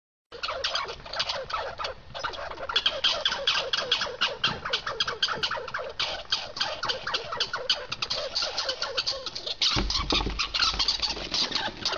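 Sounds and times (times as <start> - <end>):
squirrel chirping barks: 0.3 - 11.9.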